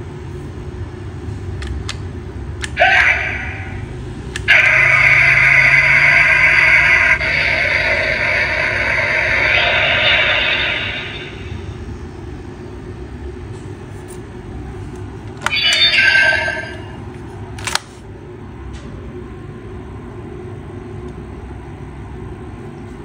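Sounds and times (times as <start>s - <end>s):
steady low hum: 0.0s - 23.0s
toy electronic sound effect: 4.4s - 11.5s, 15.4s - 17.0s.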